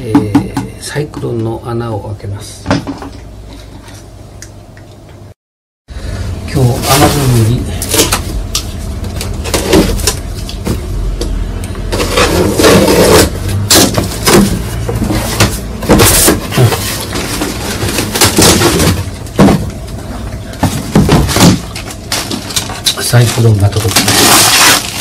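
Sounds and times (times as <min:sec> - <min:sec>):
packing tape being cut: 0:12.0 - 0:14.5, 0:21.2 - 0:25.0
plastic wrapping rustling: 0:16.0 - 0:19.4, 0:20.5 - 0:25.0.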